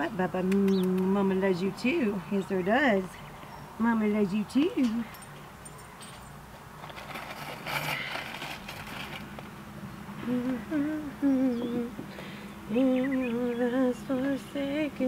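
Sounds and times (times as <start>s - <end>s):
woman humming: 10.2s - 15.0s.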